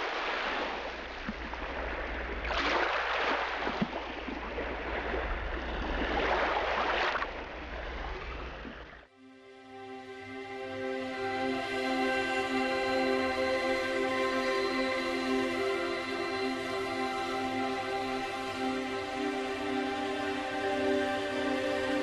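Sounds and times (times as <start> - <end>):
surf washing on a shore: 0.0 - 8.2.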